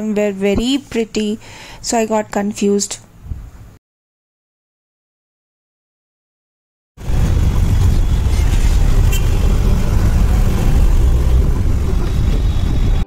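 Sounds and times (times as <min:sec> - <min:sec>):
road traffic rumble: 0:07.0 - 0:13.0.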